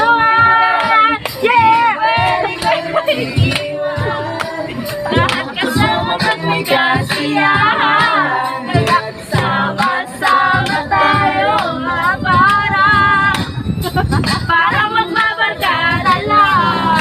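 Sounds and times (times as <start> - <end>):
group singing unaccompanied: 0.0 - 13.5, 14.5 - 17.0
hand claps: 0.8 - 3.7, 4.3 - 6.5, 8.9 - 10.9, 13.3 - 13.6.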